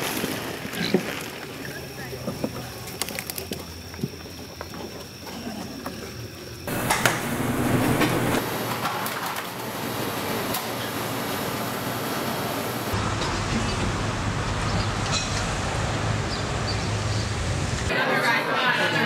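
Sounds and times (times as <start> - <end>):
kitchen rushing din: 6.7 - 11.2.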